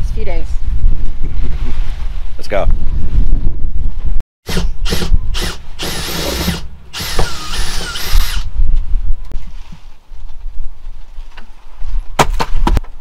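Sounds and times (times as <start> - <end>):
power drill motor whine: 4.5 - 8.5.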